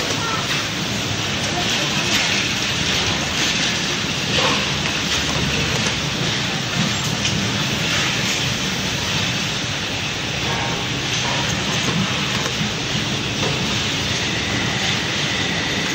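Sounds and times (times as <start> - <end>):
workshop hiss: 0.0 - 15.9
labeling machine clicks: 10.4 - 13.7.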